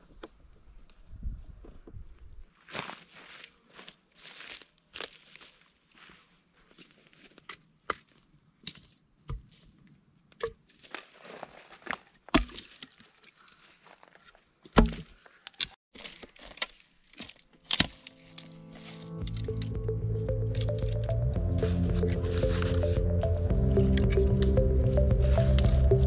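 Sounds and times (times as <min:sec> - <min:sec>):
footsteps crunching over twigs: 0:02.5 - 0:08.9, 0:10.7 - 0:14.4, 0:15.9 - 0:19.6
branches cracking and snapping: 0:10.7 - 0:19.8.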